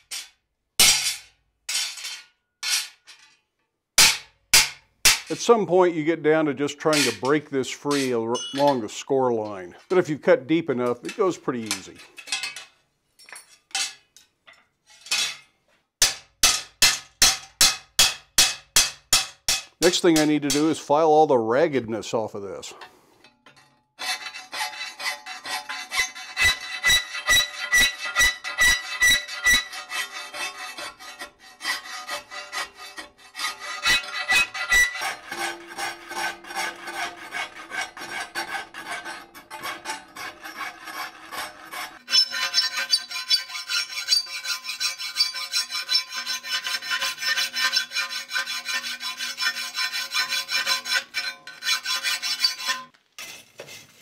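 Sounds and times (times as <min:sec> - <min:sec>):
hand files rasping on steel: 0:24.0 - 0:54.0.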